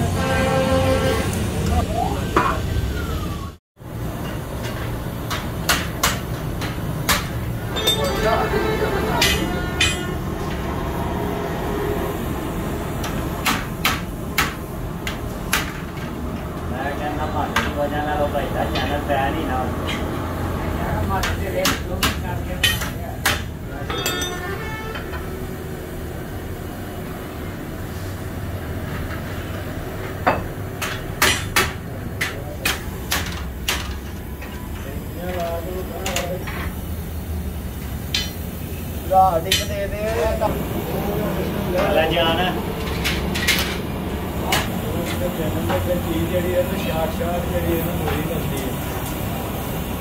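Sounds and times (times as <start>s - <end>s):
sharp knocks on metal: 4.6s - 7.4s, 13.0s - 16.1s, 30.2s - 34.0s.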